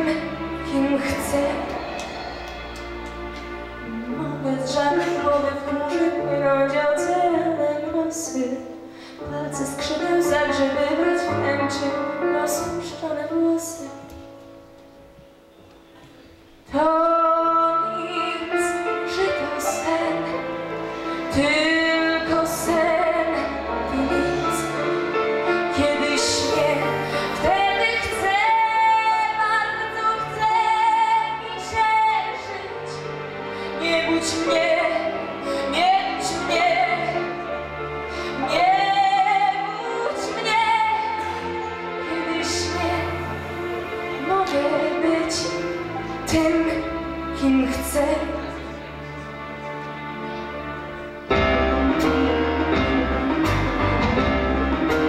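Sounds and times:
instrumental accompaniment: 0:00.0 - 0:55.0.

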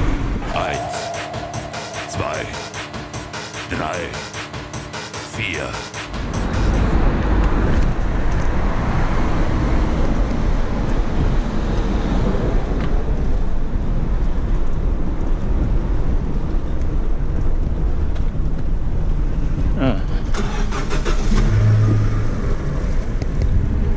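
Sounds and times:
wind noise on microphone: 0:07.0 - 0:20.4
bicycle rolling over cobblestones: 0:12.6 - 0:19.8.

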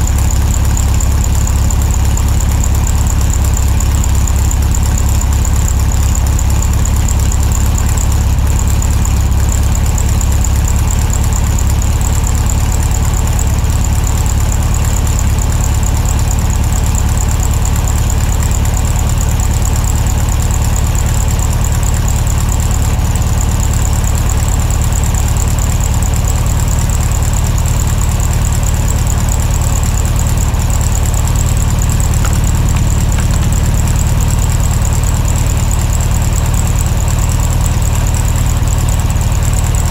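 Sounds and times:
vehicle engine running: 0:00.0 - 0:39.9.

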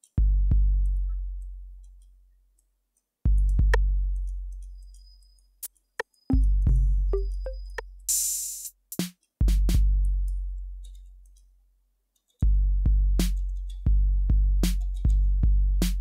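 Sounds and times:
deep bass kicks: 0:03.3 - 0:04.0, 0:12.5 - 0:13.3, 0:13.9 - 0:16.0
hi-hat ticks: 0:03.3 - 0:11.5, 0:13.2 - 0:16.0.

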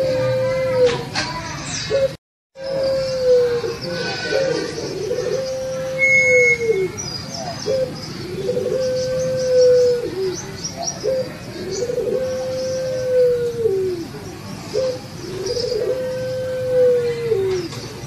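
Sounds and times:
dove cooing: 0:00.0 - 0:01.0, 0:01.9 - 0:18.0
small birds chirping: 0:01.3 - 0:16.4.

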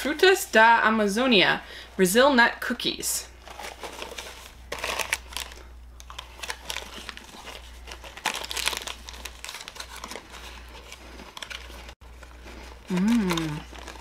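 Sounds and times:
packaging crinkling and tearing: 0:03.4 - 0:14.0.

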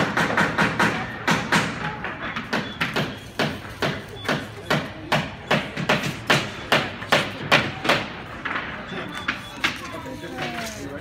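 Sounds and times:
hammer striking wood: 0:00.0 - 0:08.2.

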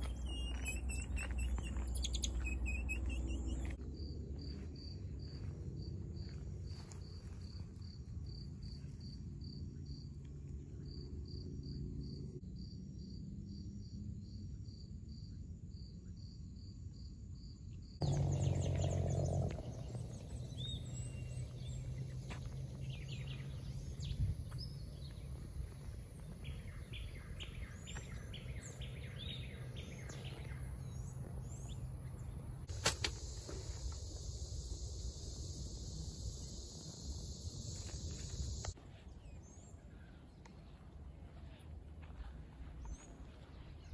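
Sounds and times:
bird chirps and trill: 0:00.0 - 0:03.8
night insects chirping: 0:00.0 - 0:05.6, 0:32.7 - 0:38.8.

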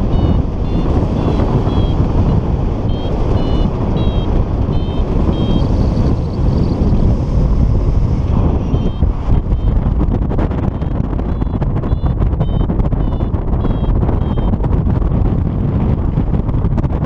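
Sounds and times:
variometer short high beeps: 0:00.0 - 0:06.2, 0:08.7 - 0:09.9, 0:10.7 - 0:14.6
wind rushing over microphone: 0:00.0 - 0:17.0.

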